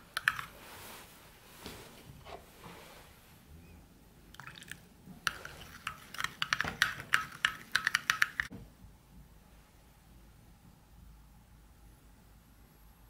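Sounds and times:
wet stirring sounds: 0.0s - 2.8s, 4.3s - 8.5s
spoon clinking against bowl: 5.3s - 8.5s.

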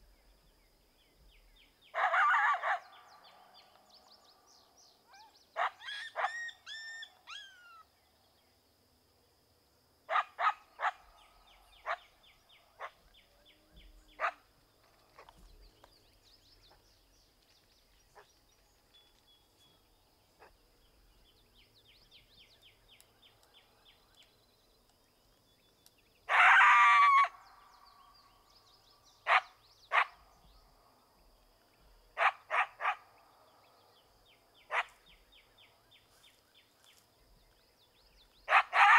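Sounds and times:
coyote barks and yips: 1.9s - 3.5s, 5.0s - 7.8s, 10.1s - 13.2s, 13.9s - 14.5s, 20.4s - 20.6s, 26.2s - 27.4s, 29.2s - 30.4s, 32.2s - 33.2s, 34.6s - 35.3s, 38.4s - 38.9s
coyote bark-howl: 1.9s - 3.7s, 5.0s - 7.9s, 10.1s - 14.5s, 26.2s - 28.3s, 29.2s - 30.8s, 32.2s - 33.7s, 34.6s - 35.3s, 38.5s - 38.9s.

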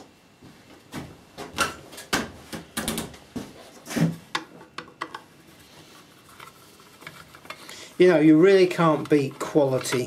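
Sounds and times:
screwdriver clicks and scrapes on metal: 8.4s - 10.0s.

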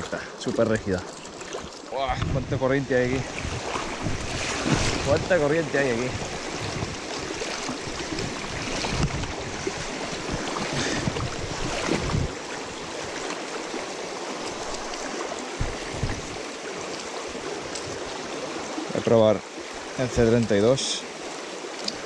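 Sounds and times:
wind buffeting microphone: 2.0s - 13.2s, 14.4s - 16.6s
river rushing over rocks: 3.4s - 22.0s.

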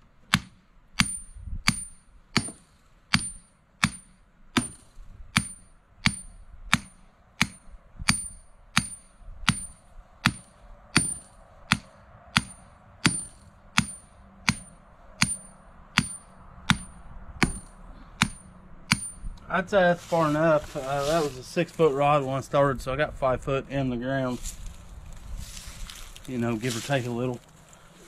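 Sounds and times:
hammer striking metal rod: 0.3s - 19.3s.

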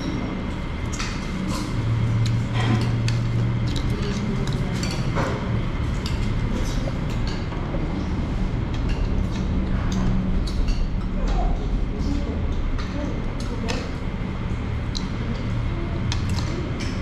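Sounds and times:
cutlery clinking on plates: 0.9s - 7.6s.

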